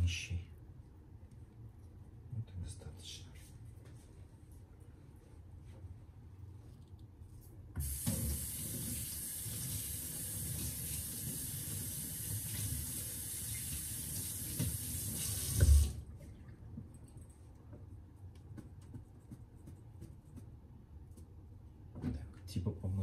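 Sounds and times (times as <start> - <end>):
tap water running into sink: 7.8 - 16.0.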